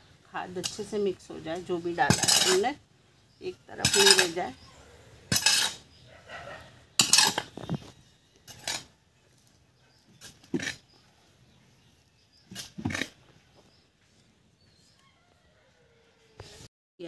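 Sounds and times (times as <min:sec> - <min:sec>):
hand tool scraping soil on concrete: 0:00.4 - 0:02.8, 0:03.7 - 0:06.1, 0:06.9 - 0:15.0.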